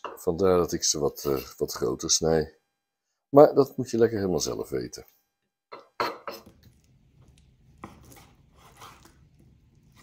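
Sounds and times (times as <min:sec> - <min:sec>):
knife slicing raw meat: 0:07.7 - 0:10.0.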